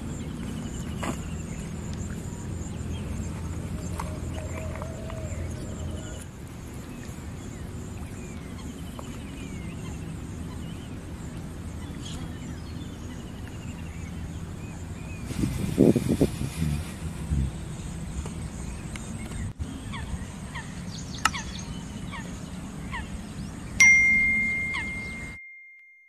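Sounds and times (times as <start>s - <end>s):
birds chirping and trilling: 0.0s - 25.4s.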